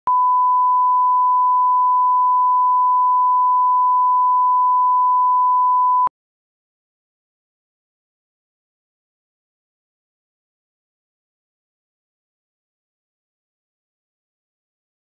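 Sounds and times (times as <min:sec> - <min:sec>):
steady test tone beep: 0:00.1 - 0:06.1.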